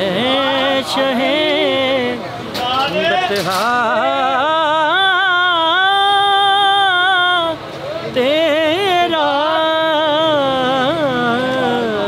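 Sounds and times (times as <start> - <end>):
man chanting unaccompanied: 0.0 - 12.0.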